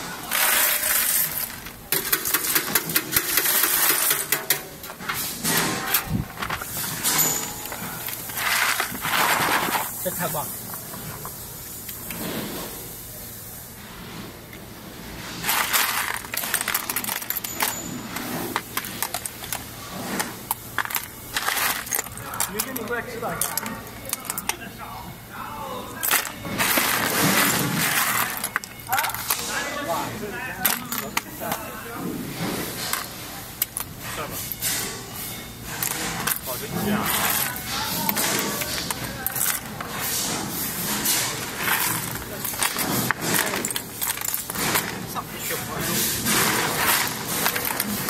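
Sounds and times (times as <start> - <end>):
nuts clattering into plastic crate: 0.2 - 10.2, 15.3 - 24.6, 26.0 - 30.0, 35.7 - 48.0.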